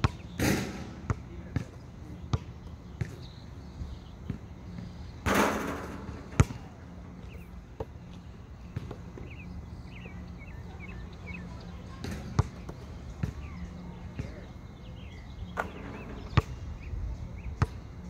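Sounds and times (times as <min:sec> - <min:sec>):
basketball bouncing on asphalt: 0:00.0 - 0:03.3, 0:04.2 - 0:14.5, 0:15.5 - 0:16.6, 0:17.6 - 0:17.8.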